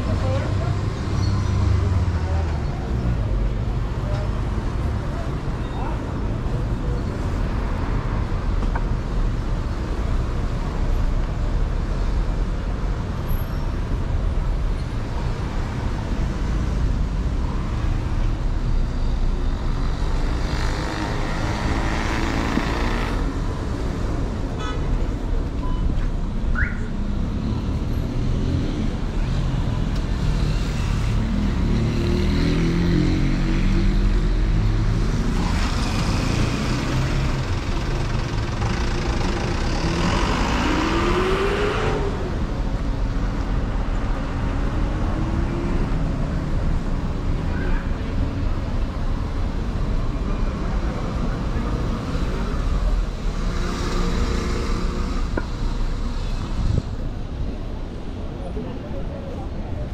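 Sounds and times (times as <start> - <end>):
traffic rumble: 0.0 - 59.9
heavy engine running close: 35.8 - 40.7.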